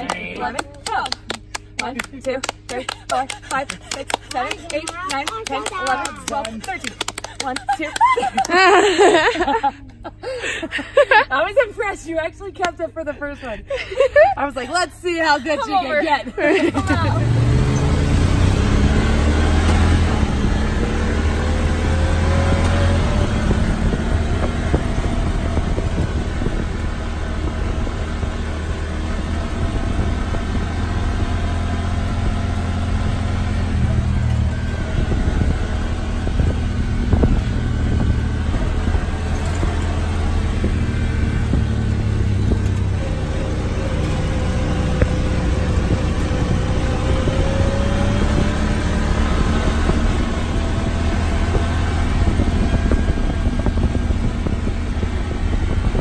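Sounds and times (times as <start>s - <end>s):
off-road vehicle engine drone: 0.0s - 56.0s
road noise: 0.0s - 56.0s.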